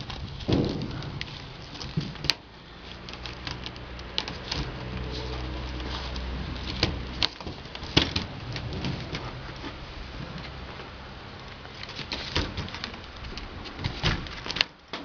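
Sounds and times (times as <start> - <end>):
claws scratching cardboard: 0.0 - 14.8
low steady hum: 0.0 - 15.0.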